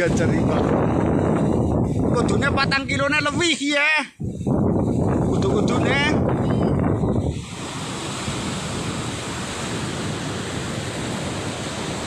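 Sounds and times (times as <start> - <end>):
wind on microphone: 0.0 - 12.0
surf breaking on beach: 5.1 - 12.0.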